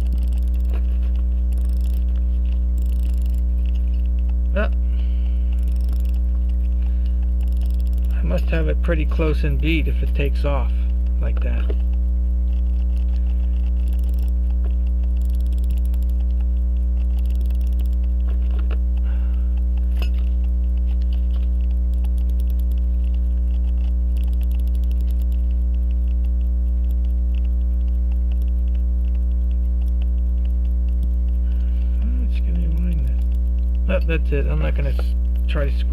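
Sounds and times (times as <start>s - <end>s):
watch winding ratchet clicks: 0.0s - 0.8s, 1.4s - 4.7s, 5.5s - 8.8s, 12.6s - 18.3s, 19.6s - 31.4s, 32.3s - 33.9s
electrical hum: 0.0s - 35.9s.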